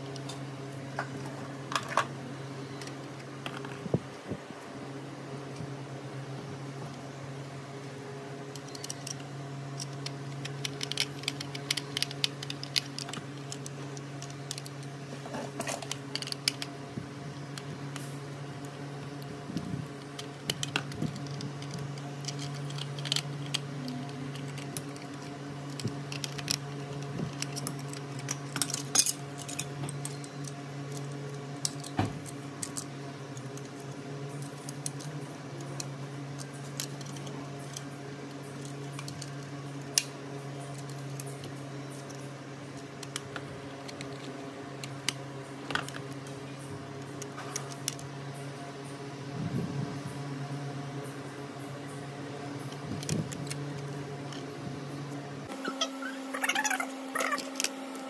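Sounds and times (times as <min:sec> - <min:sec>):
steady low hum: 0:00.0 - 0:58.0
toy parts clicking and tapping: 0:08.5 - 0:16.7, 0:18.6 - 0:42.2.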